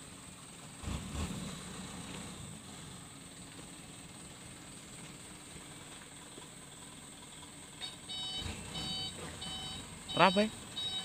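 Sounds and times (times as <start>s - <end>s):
distant vehicle engines: 0.0s - 11.0s.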